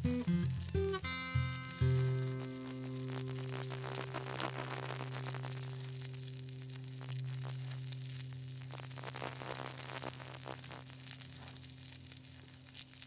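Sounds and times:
crackling static clicks: 0:00.0 - 0:13.0.

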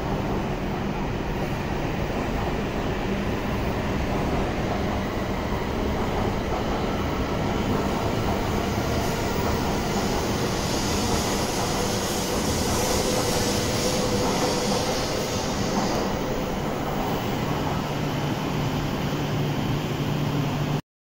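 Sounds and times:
train rumbling: 0:00.0 - 0:20.8
train hiss: 0:07.1 - 0:20.8.

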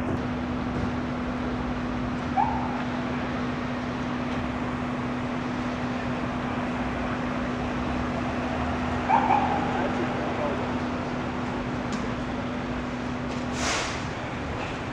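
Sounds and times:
traffic hiss on wet street: 0:00.3 - 0:14.9
dog yipping: 0:09.1 - 0:09.7.

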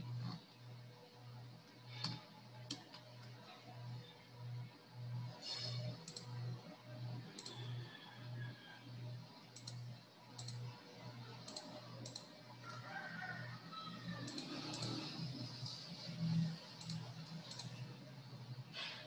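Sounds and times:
computer mouse clicking: 0:01.9 - 0:03.4, 0:05.5 - 0:06.5, 0:07.2 - 0:07.9, 0:09.5 - 0:12.8, 0:14.2 - 0:17.9.

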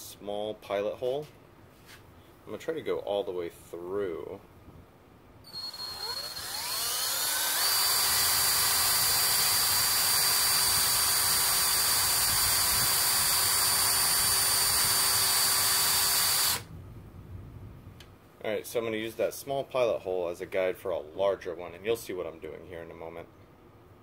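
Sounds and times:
cordless drill whining: 0:05.5 - 0:16.7.

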